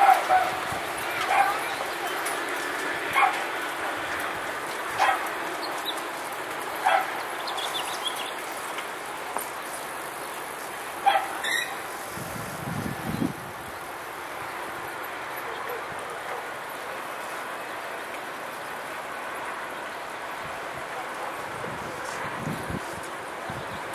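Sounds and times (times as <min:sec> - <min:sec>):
dog barking: 0:00.0 - 0:00.6, 0:01.2 - 0:01.8, 0:03.1 - 0:03.5, 0:05.0 - 0:05.3, 0:06.8 - 0:07.2, 0:11.0 - 0:11.7, 0:15.4 - 0:17.0, 0:20.9 - 0:21.5
steady background noise: 0:00.0 - 0:23.9.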